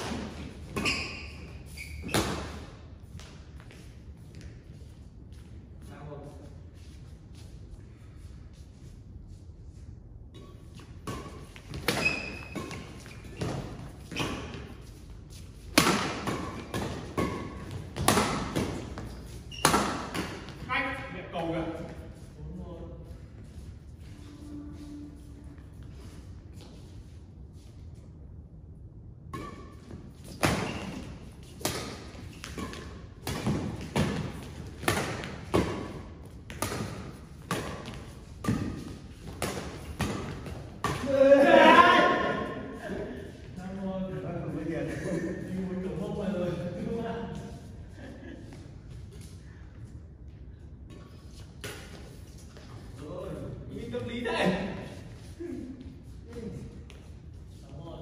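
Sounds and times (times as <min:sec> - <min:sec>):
shoes squeaking on court: 0:00.1 - 0:05.0, 0:10.3 - 0:20.7, 0:29.4 - 0:41.0
rackets hitting shuttlecock: 0:15.6 - 0:20.6, 0:29.3 - 0:41.2.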